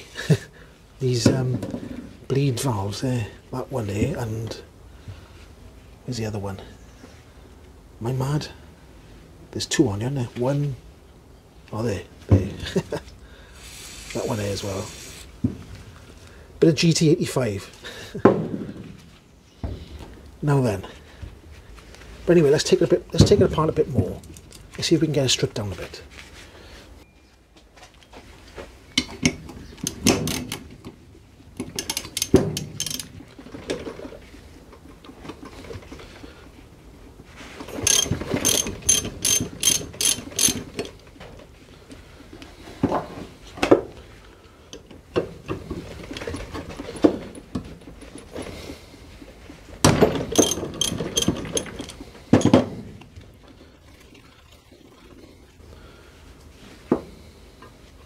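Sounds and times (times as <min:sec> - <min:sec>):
socket ratchet clicking: 0:31.6 - 0:33.1, 0:37.8 - 0:40.9.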